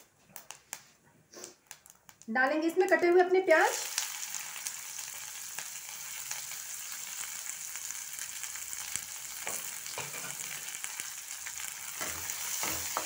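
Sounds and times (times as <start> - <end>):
onions sizzling in oil: 2.8 - 13.0.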